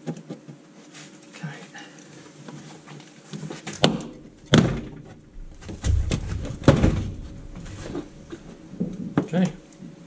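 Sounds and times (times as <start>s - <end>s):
plastic bumper knocks and thuds: 3.8s - 9.3s
low rumble: 4.0s - 9.1s.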